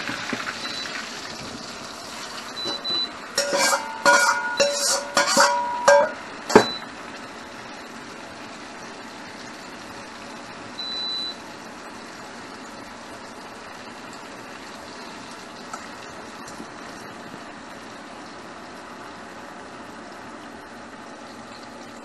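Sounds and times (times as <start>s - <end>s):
oil hissing in a wok: 0.0s - 22.0s
ladle clanking against wok: 2.6s - 6.9s.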